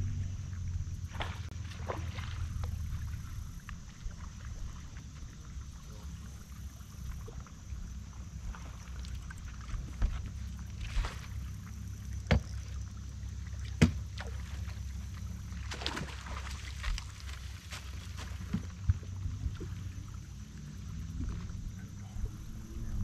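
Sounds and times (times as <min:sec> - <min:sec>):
low rumble: 0:00.0 - 0:08.5, 0:18.0 - 0:23.0
fish splashing in water: 0:00.5 - 0:21.7.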